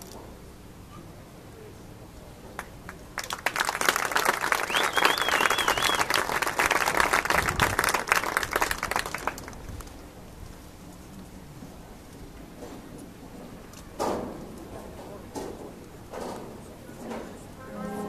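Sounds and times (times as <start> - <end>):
audience applauding: 2.9 - 9.6
crowd whistling and cheering: 4.5 - 6.3.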